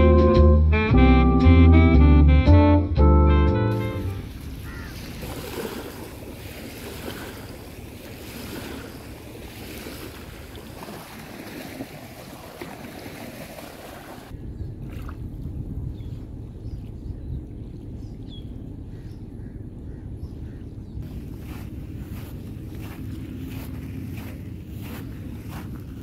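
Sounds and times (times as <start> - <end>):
small waves lapping: 4.0 - 26.0
wind buffeting microphone: 14.2 - 26.0.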